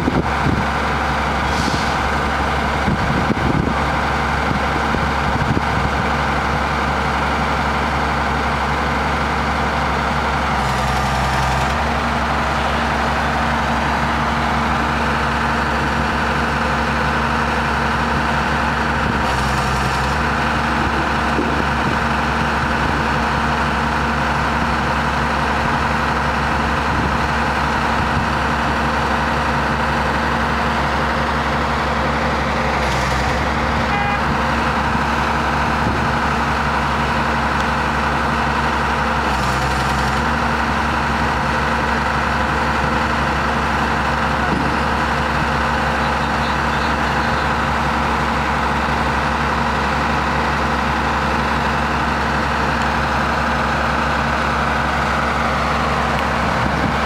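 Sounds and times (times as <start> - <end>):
excavator diesel engines running: 0.0 - 57.0.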